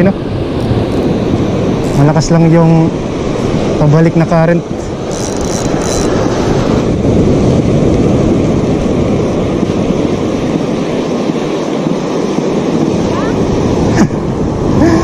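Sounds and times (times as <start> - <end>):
wind on microphone: 0.0 - 15.0.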